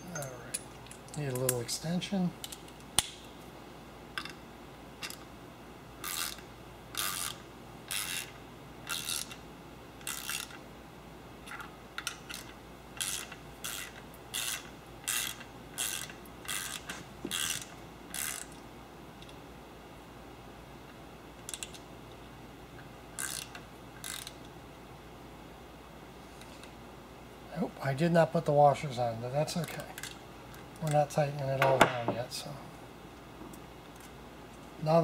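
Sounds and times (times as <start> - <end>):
hand ratchet clicking: 6.0 - 6.4, 7.0 - 9.4, 10.0 - 10.6, 11.5 - 18.6, 21.4 - 21.8, 23.2 - 24.4.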